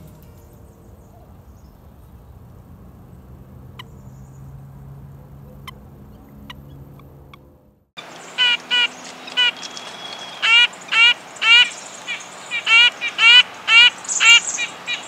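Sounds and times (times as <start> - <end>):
nuthatch nasal calls: 8.0 - 15.0.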